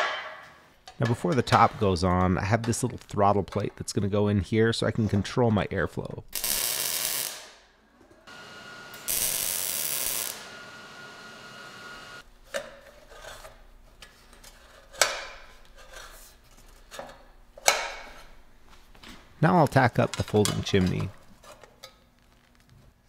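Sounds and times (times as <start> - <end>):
welder hissing: 8.3 - 12.2.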